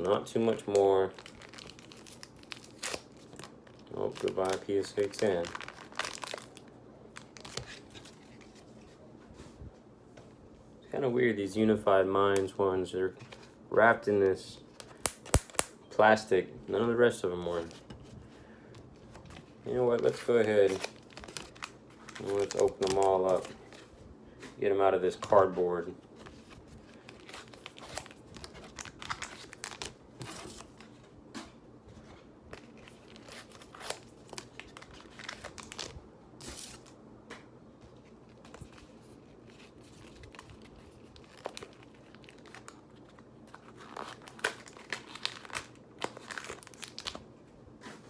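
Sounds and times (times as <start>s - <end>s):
plastic wrap crinkling: 0.0s - 8.6s, 19.4s - 23.9s, 26.2s - 30.8s, 32.5s - 36.9s, 38.3s - 47.2s.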